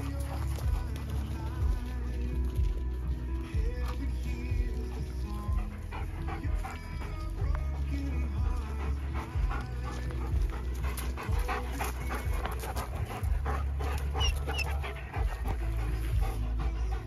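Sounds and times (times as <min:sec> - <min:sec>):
dog panting: 0:00.0 - 0:17.0.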